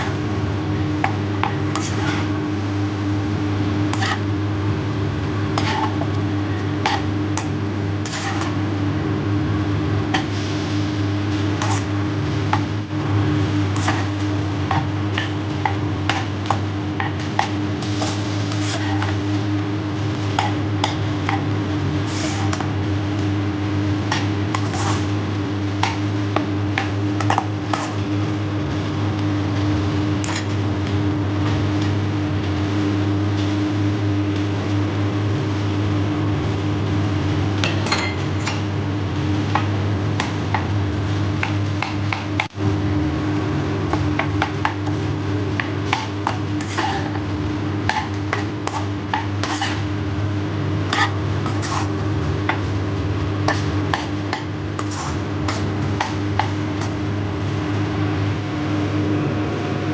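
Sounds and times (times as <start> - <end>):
steady low hum: 0.0 - 59.9
spatula scraping and tapping wok: 0.8 - 4.4, 5.4 - 8.7, 10.0 - 28.2, 30.2 - 30.7, 37.6 - 42.6, 43.9 - 57.1.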